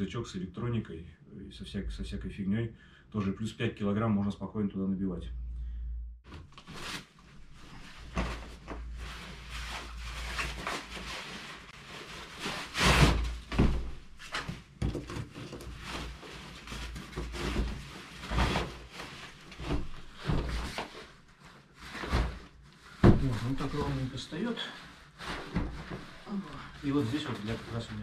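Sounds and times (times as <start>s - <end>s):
backpack rustling and thumping: 12.6s - 14.7s.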